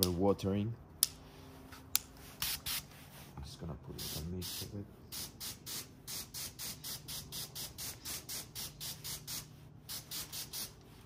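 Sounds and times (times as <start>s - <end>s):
hose nozzle spraying mist: 4.0s - 11.0s.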